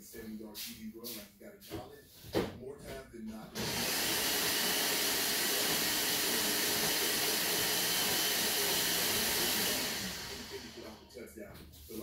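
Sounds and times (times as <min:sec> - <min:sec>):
blender running: 0:03.6 - 0:11.1.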